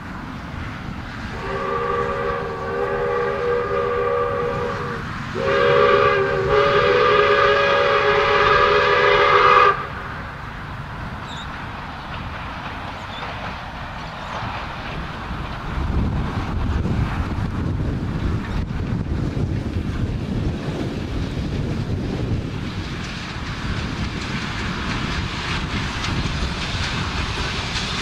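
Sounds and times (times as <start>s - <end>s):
wind noise on microphone: 0.0s - 28.0s
steam locomotive whistle: 1.3s - 10.2s.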